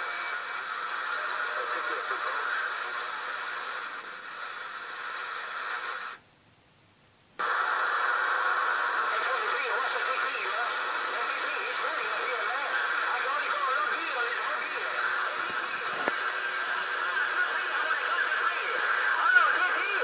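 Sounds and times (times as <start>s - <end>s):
radio static hiss: 0.0s - 20.0s
faint garbled voices: 8.5s - 20.0s.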